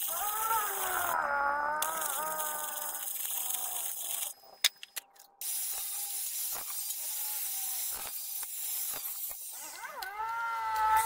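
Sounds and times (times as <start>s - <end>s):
angle grinder grinding steel: 0.0s - 1.2s, 5.4s - 11.0s
welding crackle: 0.0s - 1.2s, 1.8s - 4.4s.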